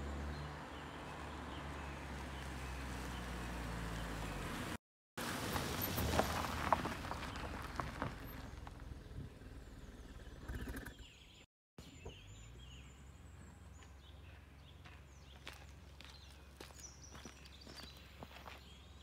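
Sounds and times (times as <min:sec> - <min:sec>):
car passing by: 0:00.0 - 0:08.4.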